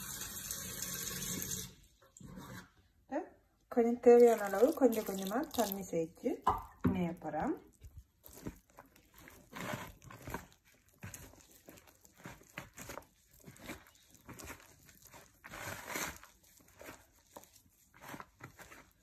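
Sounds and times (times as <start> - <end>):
hands squishing dough: 4.0 - 19.0.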